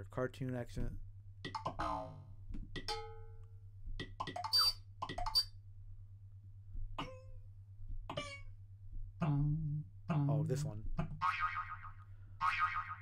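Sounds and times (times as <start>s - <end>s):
comic hits and boings: 1.5s - 2.2s, 11.0s - 13.0s.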